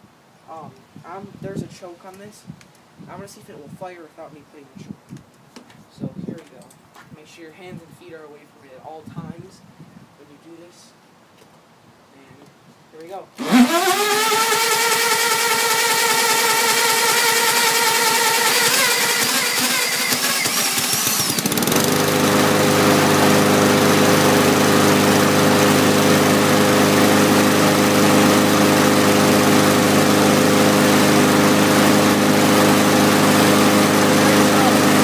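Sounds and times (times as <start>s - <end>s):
cordless drill whining: 13.4s - 24.5s
lawnmower engine running: 13.4s - 35.0s.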